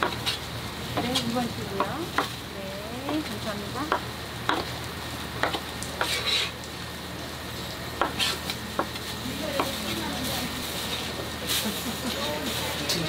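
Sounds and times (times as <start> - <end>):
background hiss and hum: 0.0 - 13.0
knife chopping on cutting board: 3.9 - 4.7, 5.4 - 6.5, 8.0 - 8.9.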